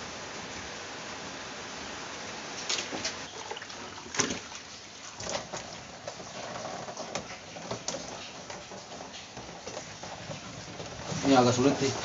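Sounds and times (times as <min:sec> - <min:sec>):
steady hiss: 0:00.0 - 0:12.0
cloth rubbing on plastic: 0:05.2 - 0:12.0.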